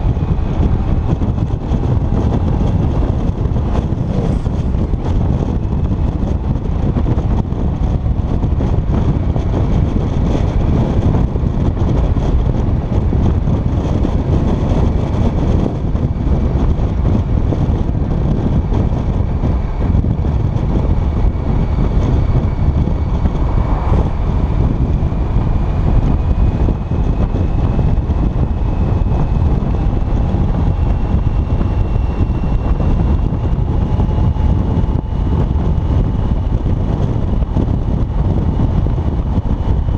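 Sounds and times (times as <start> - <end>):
faint rising whine: 0.0 - 13.0
motorcycle engine running: 0.0 - 39.9
wind buffeting microphone: 0.0 - 39.9.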